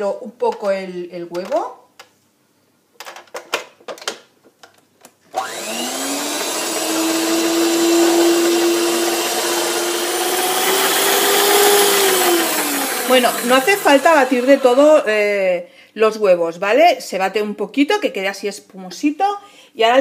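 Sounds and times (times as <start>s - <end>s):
stand mixer motor whine: 5.4s - 15.1s.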